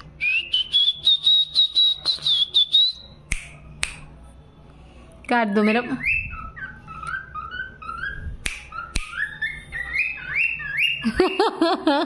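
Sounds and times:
cockatiel whistling: 0.2 - 3.2, 5.5 - 11.5.

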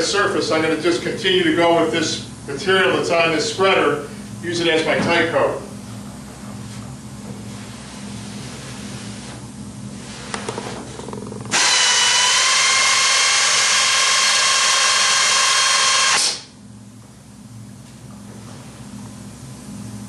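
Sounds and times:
dispenser gun motor whining: 11.1 - 16.5.

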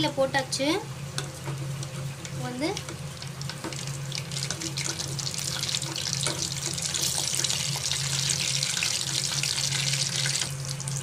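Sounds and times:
food deep-frying in oil: 0.0 - 11.0.

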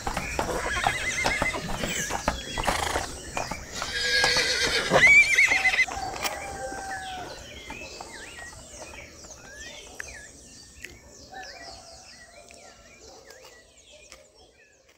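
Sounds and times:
birds chirping and calling: 0.0 - 14.9.

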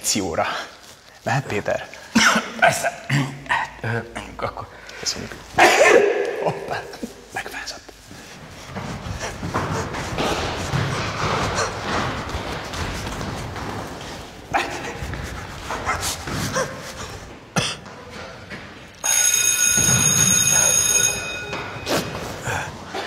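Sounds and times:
children running in corridor: 8.2 - 23.0
electric school bell ringing: 19.0 - 22.2.

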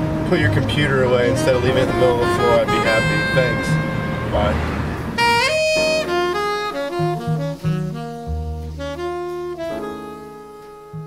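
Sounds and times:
background music melody: 0.0 - 11.0.

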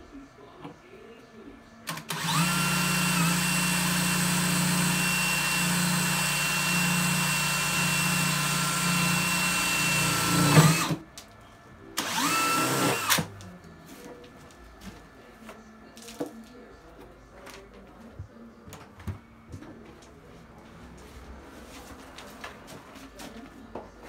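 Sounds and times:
cordless drill running: 1.9 - 11.0, 12.0 - 13.3.

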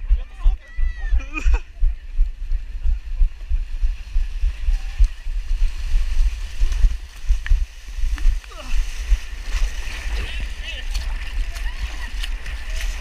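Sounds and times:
runners splashing in water: 3.4 - 13.0.

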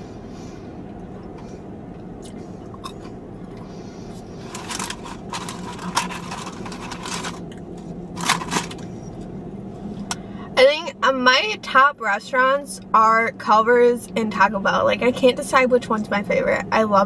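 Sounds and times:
paper and cardboard crinkling: 4.4 - 7.5, 8.2 - 8.9.

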